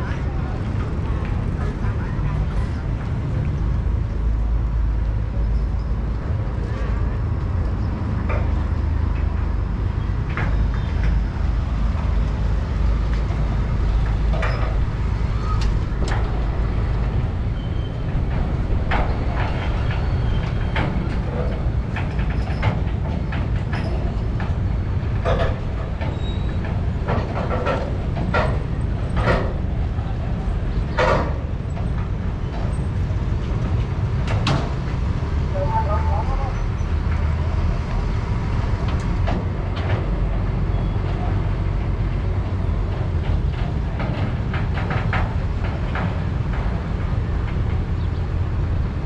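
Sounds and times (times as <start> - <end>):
distant voices: 0.0 - 48.9
low street rumble: 0.0 - 49.0
scattered clicks and clatter: 10.2 - 35.0, 38.6 - 49.0.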